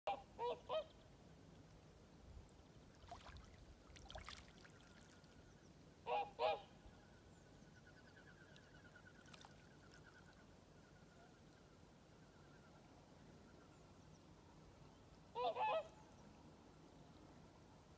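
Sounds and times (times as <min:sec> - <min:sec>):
swans honking: 0:06.1 - 0:06.8, 0:15.3 - 0:15.9.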